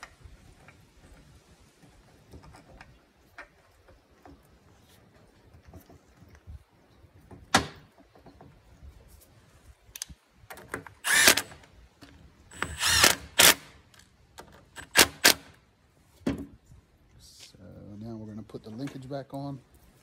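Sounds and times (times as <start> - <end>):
cordless drill running: 11.0 - 11.5, 12.5 - 13.7.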